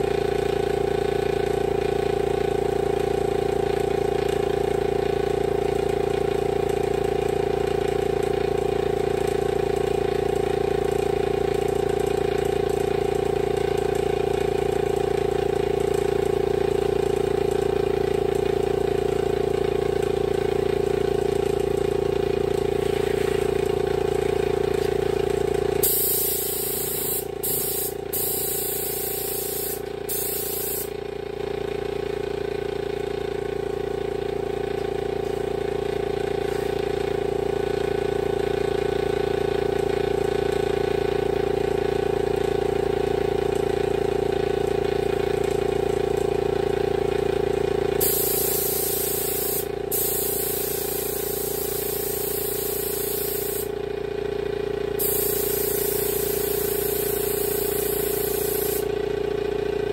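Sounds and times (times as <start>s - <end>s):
air spray gun hissing: 25.8s - 30.9s, 48.0s - 53.7s, 55.0s - 58.9s.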